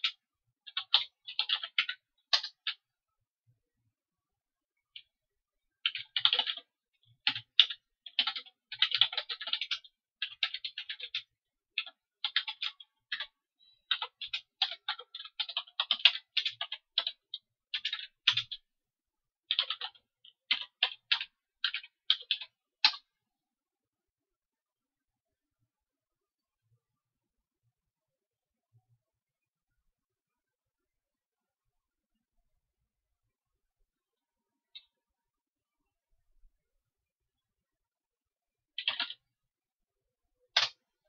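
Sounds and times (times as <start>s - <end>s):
typing on computer keyboard: 0.0s - 2.8s, 5.8s - 18.7s, 19.5s - 23.1s, 38.8s - 39.3s, 40.5s - 40.8s.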